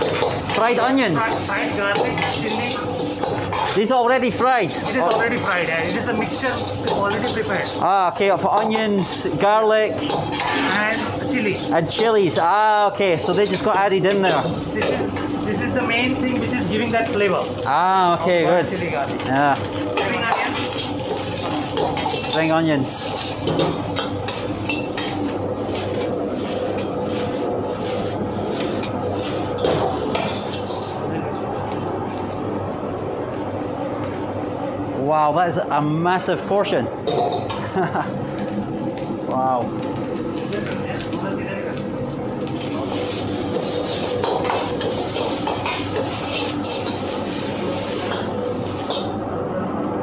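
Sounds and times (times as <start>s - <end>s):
chicken sizzling in a wok: 0.0s - 32.2s, 37.0s - 49.3s
steady rushing hiss and hum: 0.0s - 50.0s
metal ladle scraping a wok: 42.9s - 49.1s.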